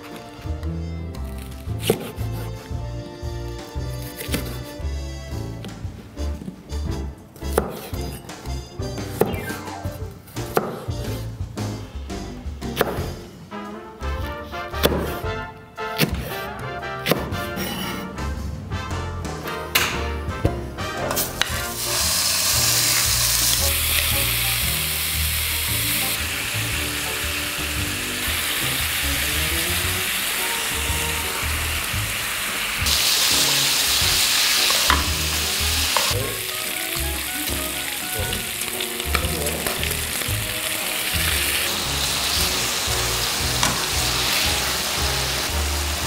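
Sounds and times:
meat sizzling in a pan: 21.4s - 46.0s.

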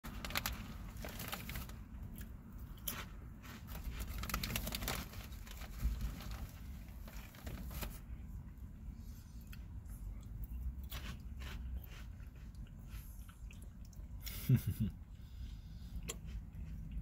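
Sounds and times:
plastic bag crinkling: 0.0s - 2.0s, 2.9s - 8.0s
low steady rumble: 0.0s - 17.0s.

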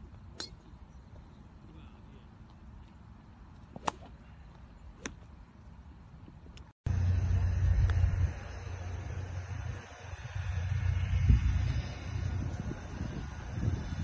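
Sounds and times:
golf club striking ball: 0.4s - 0.7s, 3.8s - 4.1s
wind buffeting microphone: 7.8s - 14.0s.

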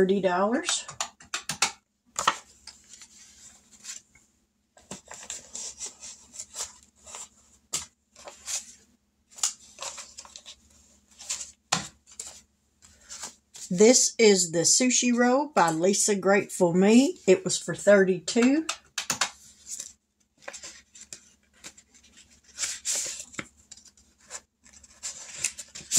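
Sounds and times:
paper rustling and crinkling: 2.2s - 4.2s, 4.8s - 13.7s, 19.3s - 25.9s.

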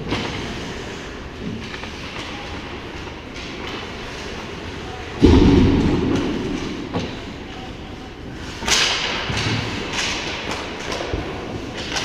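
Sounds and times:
sticks and puck clacking: 0.0s - 4.6s, 8.4s - 12.0s
loud sharp crack: 5.2s - 7.2s.

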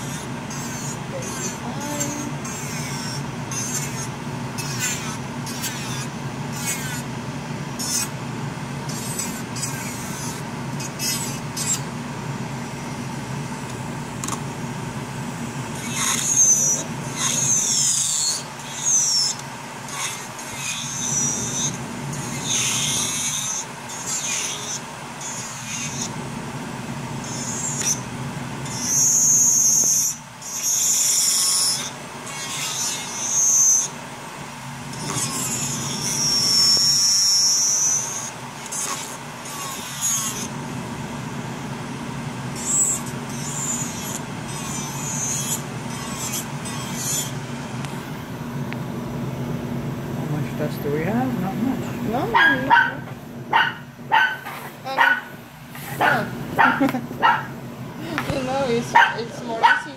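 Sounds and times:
electric nail drill whining: 0.0s - 7.1s, 8.8s - 11.9s, 15.3s - 26.3s, 27.1s - 34.0s, 34.8s - 40.6s, 42.3s - 48.0s
nail file rasping: 0.0s - 7.1s, 7.8s - 8.1s, 8.9s - 11.8s, 15.8s - 26.1s, 27.2s - 28.0s, 28.7s - 33.9s, 34.9s - 40.5s, 42.6s - 47.4s
dust collector fan humming: 0.0s - 59.9s.

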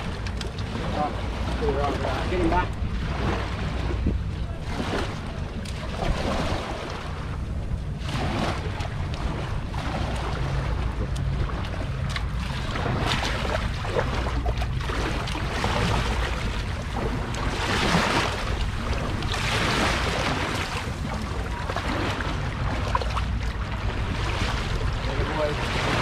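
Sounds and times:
wind rumble on microphone: 0.0s - 26.0s
water splashing over concrete: 8.0s - 26.0s.

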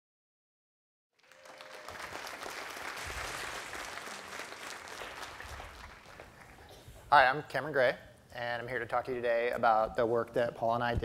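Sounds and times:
audience applauding: 1.2s - 6.7s.

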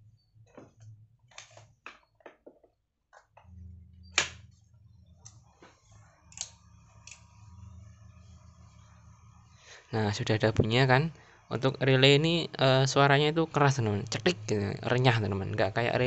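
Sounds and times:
low steady hum: 3.3s - 16.0s.

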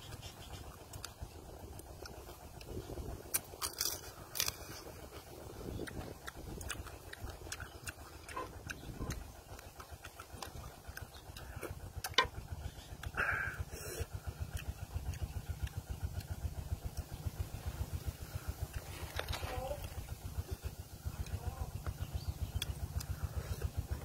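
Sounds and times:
crab shell crunching: 1.9s - 5.0s.

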